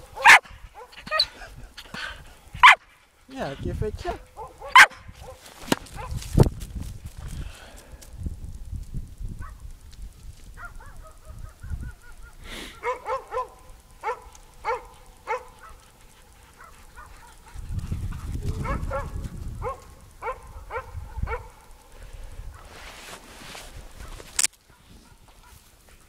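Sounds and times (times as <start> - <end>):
dog barking: 0.0 - 1.3, 2.6 - 2.9, 4.2 - 6.2, 10.6 - 21.6, 24.0 - 25.6.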